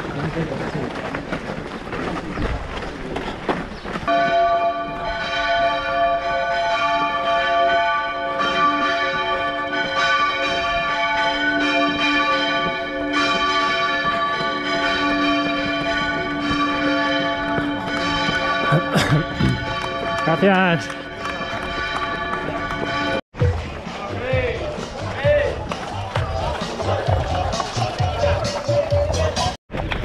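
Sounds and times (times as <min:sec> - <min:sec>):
church bells ringing: 0:04.1 - 0:23.2.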